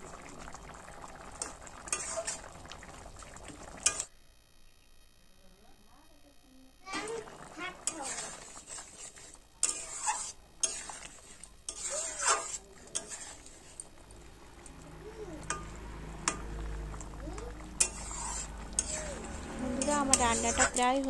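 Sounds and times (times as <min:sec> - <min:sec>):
thick curry simmering: 0:00.0 - 0:04.0, 0:06.9 - 0:21.0
metal spatula scraping metal pan: 0:01.4 - 0:02.5, 0:07.8 - 0:13.9, 0:17.7 - 0:21.0.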